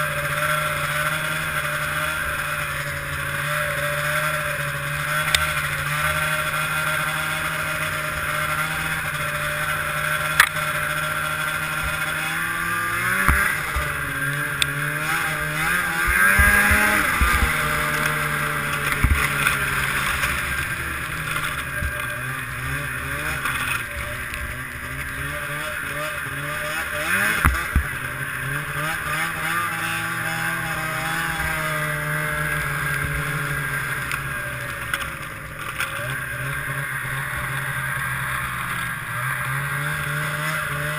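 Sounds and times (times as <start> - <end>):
snowmobile engine revving: 0.0 - 40.9.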